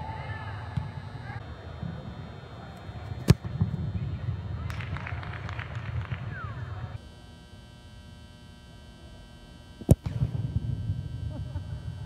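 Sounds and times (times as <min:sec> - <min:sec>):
foot kicking football: 0:00.0 - 0:06.9.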